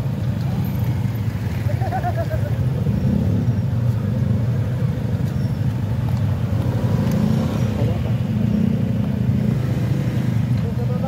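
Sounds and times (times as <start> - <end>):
scooter engines idling: 0.0 - 6.8.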